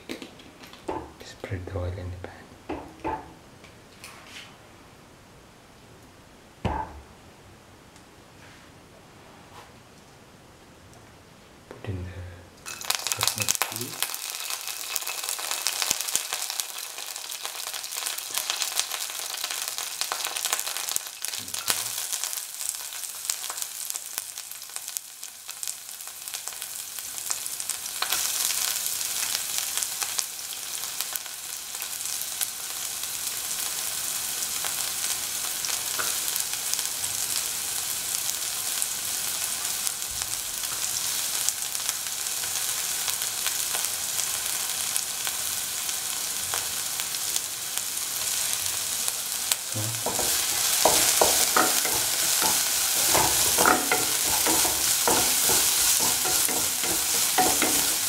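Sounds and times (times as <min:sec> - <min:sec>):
hot oil sizzling in a frying pan: 0:12.6 - 0:58.0.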